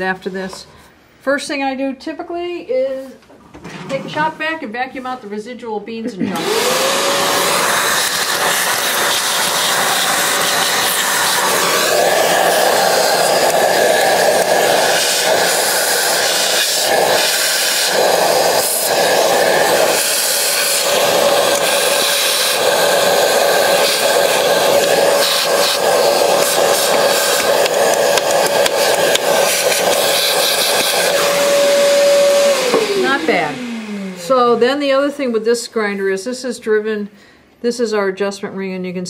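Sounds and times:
shop vac whining: 0:06.2 - 0:36.4.

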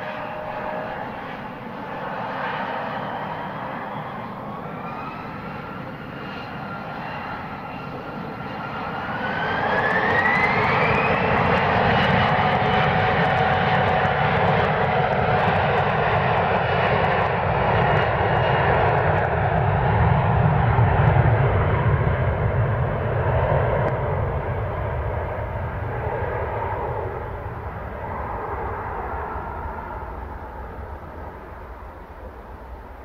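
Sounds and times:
jet engines spooling up: 0:00.0 - 0:33.0.

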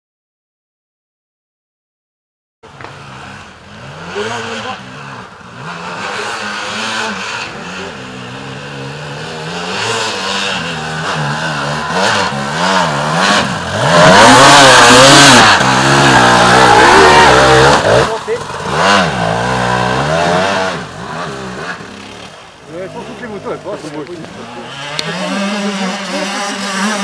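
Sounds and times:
dirt bike engine revving: 0:02.7 - 0:27.0.

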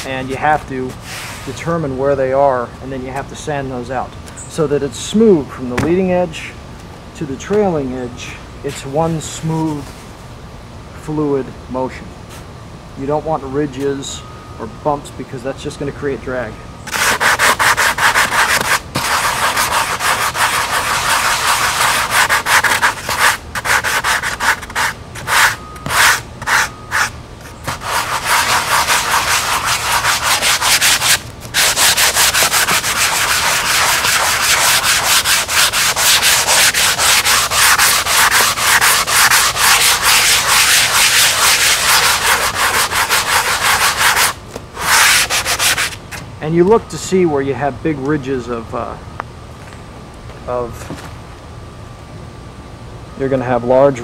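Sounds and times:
sanding sponge scrubbing: 0:16.9 - 0:46.0.

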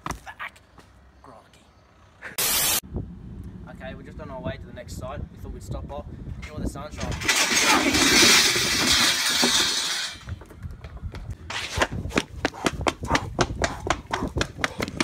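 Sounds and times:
chairs toppling in clattering crash: 0:07.0 - 0:10.3
running footsteps: 0:10.2 - 0:15.0.

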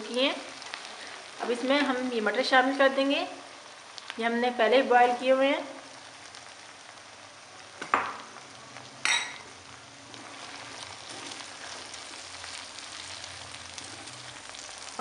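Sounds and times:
food sizzling in a pan: 0:00.0 - 0:15.0
spatula stirring: 0:10.2 - 0:13.1.

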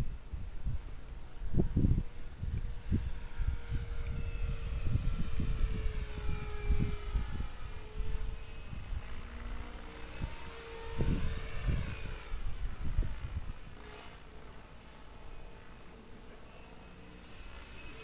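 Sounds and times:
wind buffeting microphone: 0:00.0 - 0:14.2
model helicopter whine: 0:00.0 - 0:18.0.

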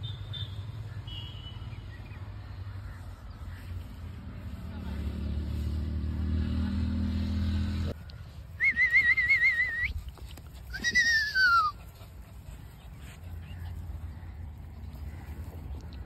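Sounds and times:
puppy whining: 0:10.6 - 0:11.9.

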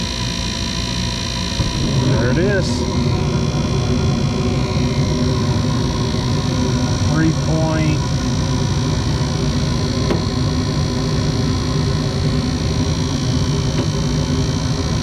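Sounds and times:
gas furnace humming: 0:00.0 - 0:15.0.

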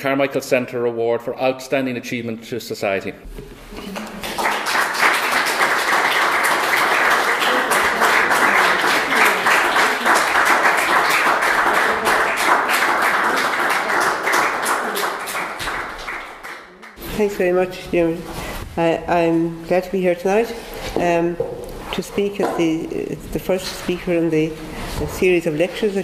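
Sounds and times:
small audience applauding: 0:03.7 - 0:17.0.

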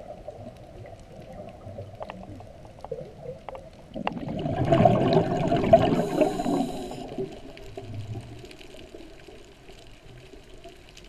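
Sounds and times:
low underwater hiss: 0:03.8 - 0:11.0
gush of bubbles: 0:04.0 - 0:08.9.

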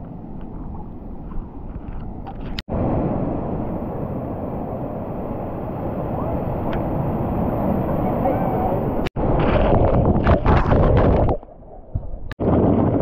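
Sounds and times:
wind blowing across microphone: 0:00.0 - 0:13.0
surf washing: 0:02.7 - 0:10.6.

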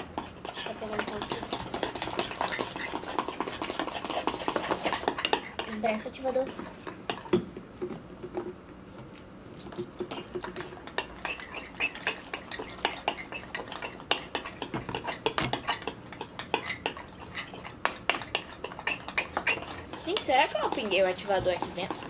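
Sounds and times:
spoons clinking against bowls: 0:00.0 - 0:07.4, 0:10.0 - 0:22.0.

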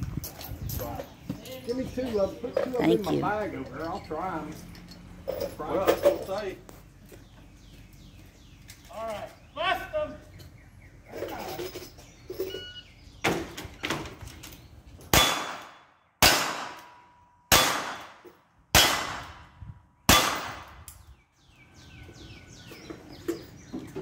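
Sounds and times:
loud gunshots: 0:15.1 - 0:16.9, 0:17.5 - 0:19.4, 0:20.1 - 0:20.7.

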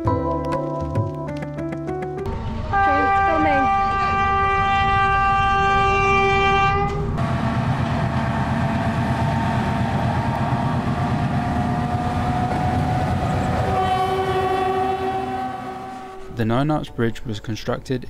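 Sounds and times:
locomotive horn blast: 0:02.3 - 0:16.4
diesel engine rumbling: 0:06.9 - 0:16.4.

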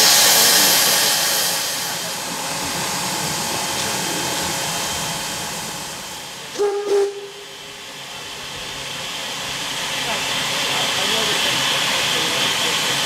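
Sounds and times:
steam locomotive hissing: 0:00.0 - 0:13.0
steam whistle toot: 0:06.6 - 0:07.5.

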